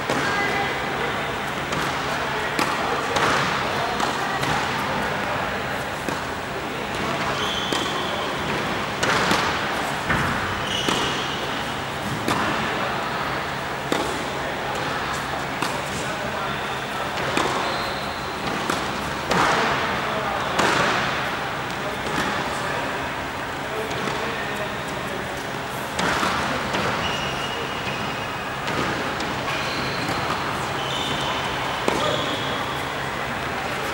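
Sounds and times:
racket hitting tennis ball: 1.6 - 12.8, 13.8 - 16.1, 17.1 - 17.6, 18.3 - 22.6, 25.4 - 27.0, 27.8 - 32.8
tennis ball bouncing on hard court: 2.6 - 4.8, 6.0 - 6.3, 6.9 - 12.7, 13.9 - 14.9, 15.6 - 16.0, 17.1 - 17.6, 18.4 - 19.8, 27.9 - 32.5.

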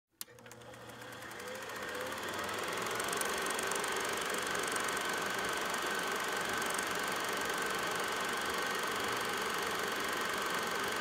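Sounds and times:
projector switch click: 0.2 - 1.1
film projector clattering: 0.2 - 11.0.

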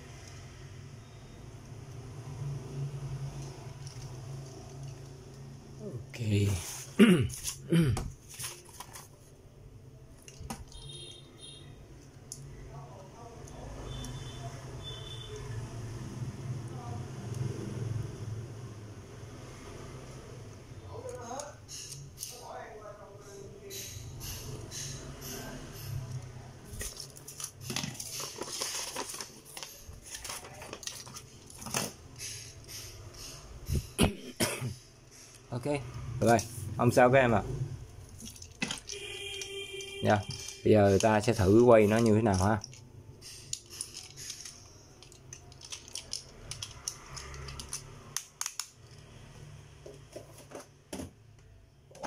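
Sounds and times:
paper rustling and crinkling: 8.2 - 9.3, 26.7 - 32.0
plastic clicks and rattles: 38.2 - 49.1.

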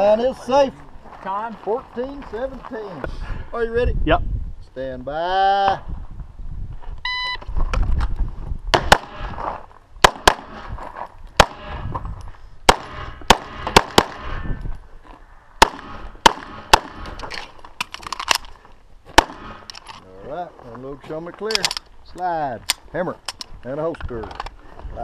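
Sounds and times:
pistol shots: 8.7 - 9.4, 10.0 - 10.7, 11.4 - 11.8, 12.7 - 14.4, 15.6 - 17.2, 19.1 - 19.7.

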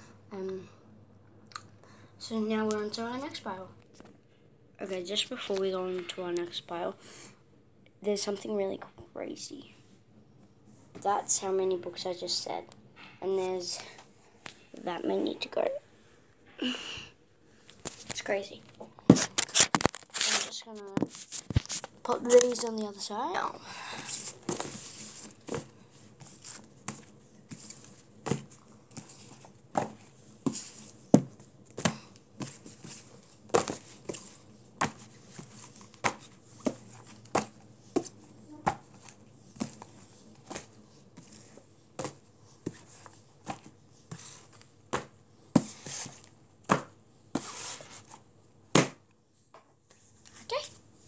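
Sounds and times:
paper rustling: 19.1 - 22.8
books knocking onto stack: 29.7 - 32.7, 33.5 - 39.0, 46.7 - 47.5, 48.8 - 49.0.

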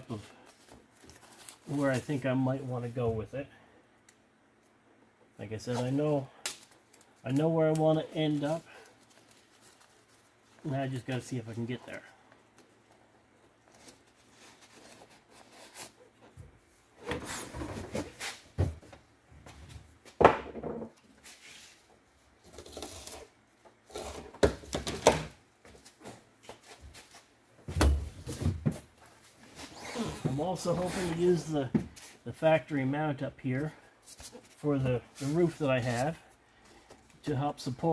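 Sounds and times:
rustling: 5.7 - 16.6.

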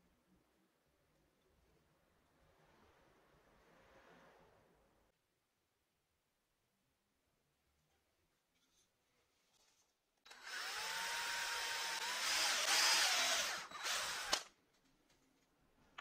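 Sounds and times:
cordless drill boring wood: 10.3 - 14.5.

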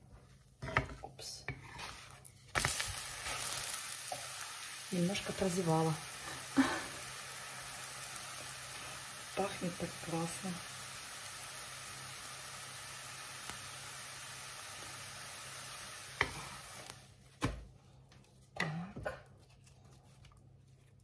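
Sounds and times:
crepe sizzling in a frying pan: 1.5 - 17.2.

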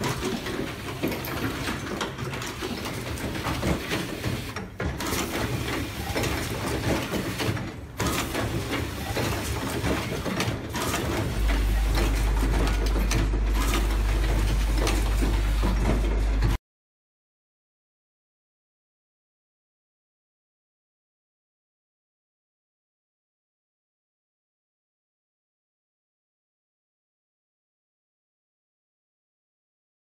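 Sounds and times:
machine clattering with rapid clicks: 0.0 - 16.6.

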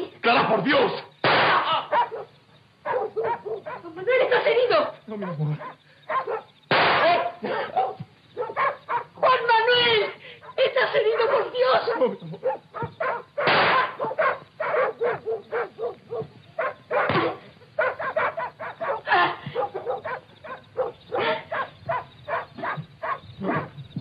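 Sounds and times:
person sobbing and crying out: 19.0 - 19.5.

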